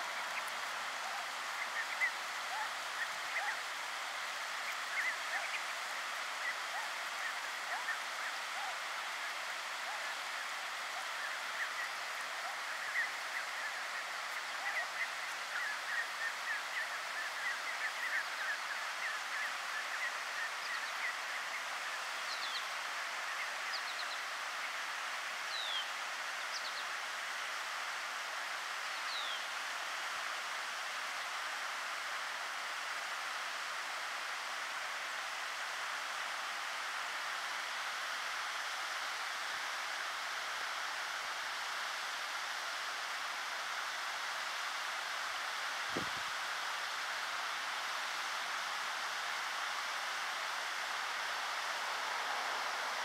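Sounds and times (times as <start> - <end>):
steady hiss: 0.0 - 53.0.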